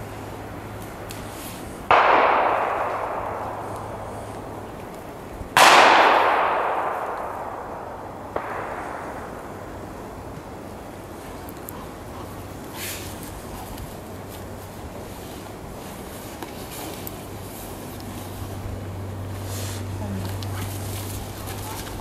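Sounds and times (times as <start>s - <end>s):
echo through woods: 0.0s - 16.1s
gunshots echoing: 1.9s - 11.1s.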